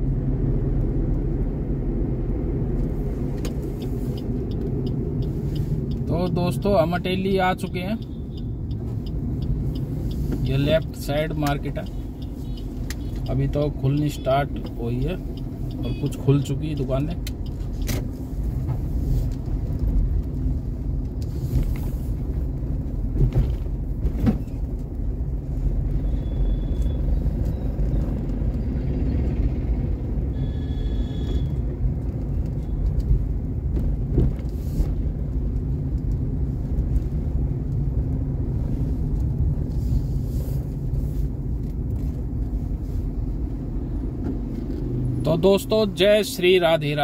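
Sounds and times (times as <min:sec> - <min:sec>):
vehicle road and engine rumble: 0:00.0 - 0:47.0
short high beeps: 0:30.4 - 0:31.5.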